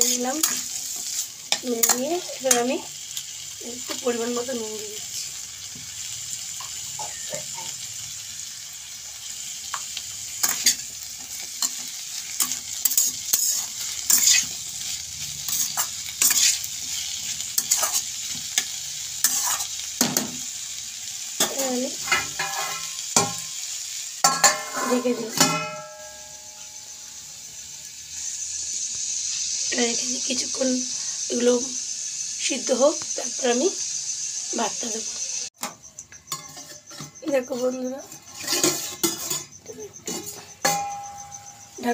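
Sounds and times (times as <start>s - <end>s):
metal spatula scraping a pan: 0.0s - 7.9s, 9.7s - 20.5s, 21.4s - 26.6s, 35.6s - 41.9s
vegetables sizzling in a wok: 0.0s - 41.9s
glass lid clanking on pan: 24.2s - 26.2s.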